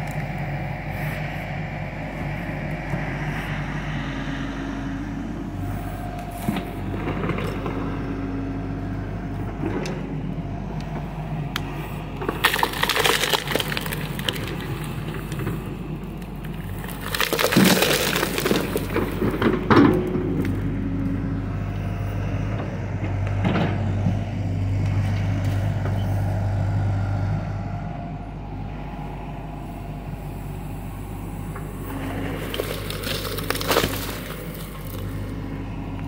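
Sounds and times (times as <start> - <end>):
excavator diesel engine: 0.0 - 36.0
bucket scraping through soil and stones: 12.3 - 15.4, 16.6 - 19.5, 31.9 - 35.2.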